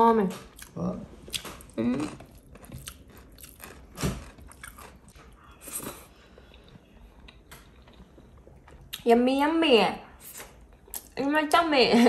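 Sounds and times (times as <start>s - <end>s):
person chewing: 0.5s - 9.0s, 10.2s - 11.2s.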